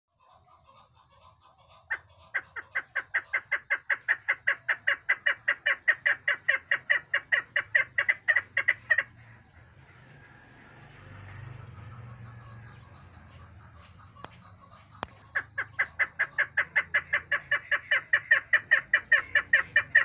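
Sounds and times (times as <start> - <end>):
partridge chuck calls: 0.1 - 10.2, 11.3 - 20.0
partridge clucking: 12.3 - 20.0.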